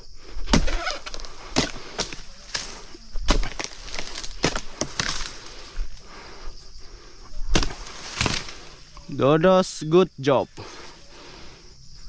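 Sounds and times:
leaves rustling: 0.0s - 9.4s
sharp chops and knocks: 0.5s - 5.3s, 7.5s - 8.5s.

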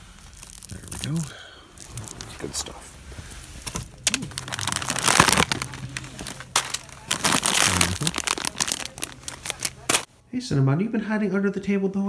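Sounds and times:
plastic snack bag crinkling: 0.0s - 2.9s, 3.6s - 10.1s.

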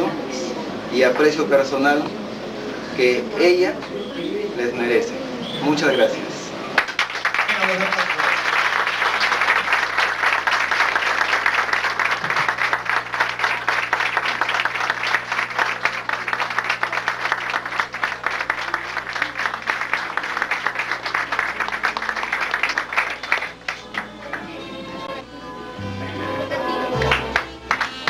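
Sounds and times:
crowd applauding: 6.8s - 24.6s, 26.9s - 28.0s.

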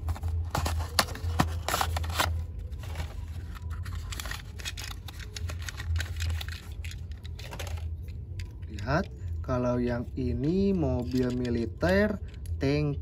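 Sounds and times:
cardboard box being opened: 0.0s - 4.9s
plastic crinkling: 0.0s - 8.6s
low steady hum: 0.0s - 13.0s.

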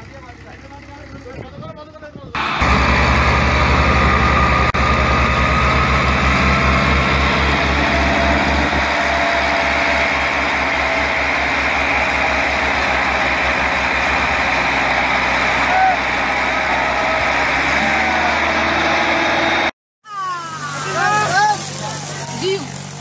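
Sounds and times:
diesel tractor engine throbbing: 2.4s - 19.7s.

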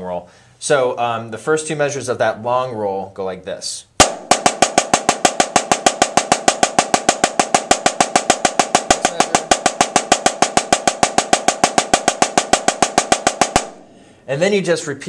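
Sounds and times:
snare drum roll: 4.0s - 13.9s.

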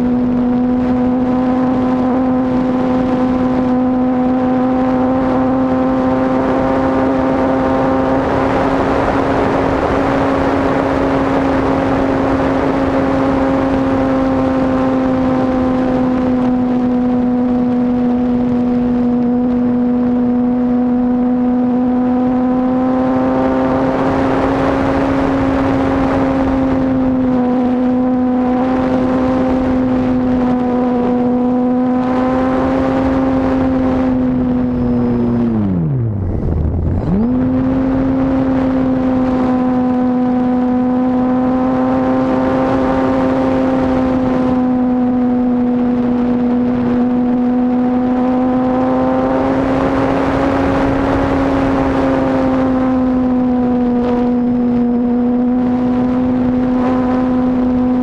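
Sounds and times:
model airplane motor and propeller: 0.0s - 58.0s
wind rush: 0.0s - 58.0s.

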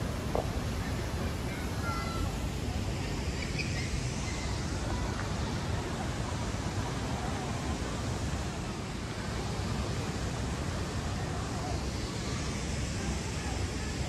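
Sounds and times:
rushing outdoor ambience: 0.0s - 14.0s.

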